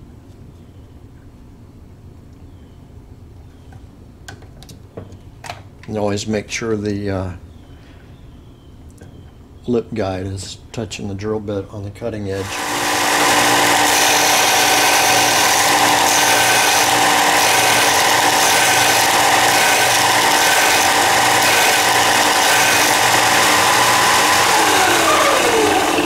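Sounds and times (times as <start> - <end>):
belt sander motor whine: 12.4 - 26.0.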